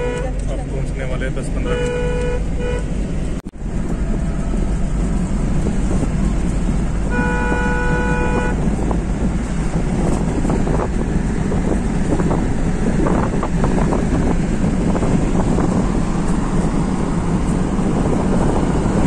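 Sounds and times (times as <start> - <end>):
car horn honk: 0.0 - 0.4, 1.5 - 3.0, 7.0 - 8.9
car road noise inside cabin: 0.0 - 19.0.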